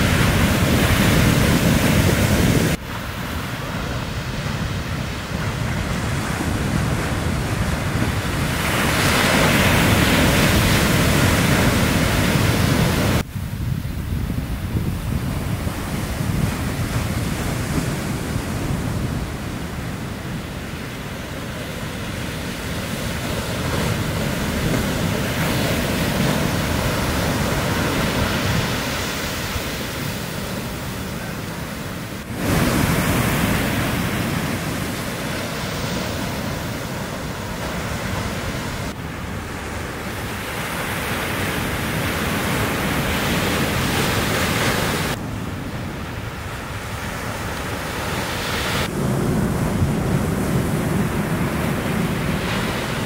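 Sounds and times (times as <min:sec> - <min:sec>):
small waves breaking: 0:15.7 - 0:53.0.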